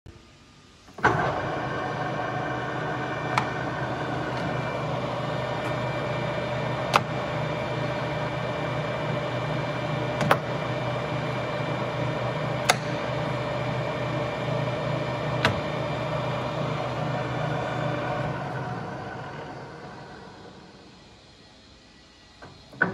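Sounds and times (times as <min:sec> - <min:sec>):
lathe carriage control clicks: 0:00.9 - 0:17.4
metal lathe humming: 0:01.0 - 0:21.2.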